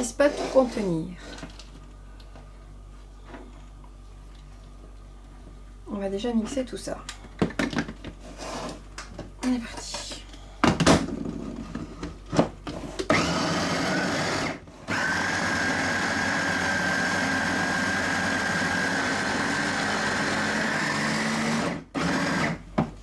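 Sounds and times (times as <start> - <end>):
electric food chopper whining: 13.0 - 22.7.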